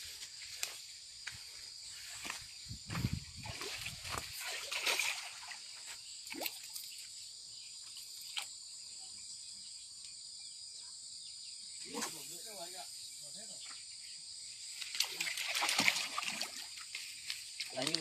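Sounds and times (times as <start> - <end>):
water splashing and sloshing: 2.0 - 7.2, 14.7 - 18.0.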